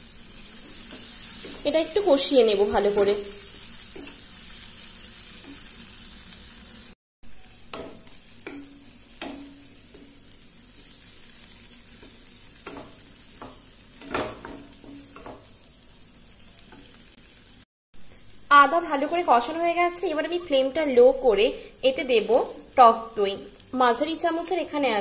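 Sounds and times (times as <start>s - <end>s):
paste sizzling in hot oil: 0.0s - 25.0s
spatula knocking against pan: 7.7s - 10.2s, 12.6s - 15.5s.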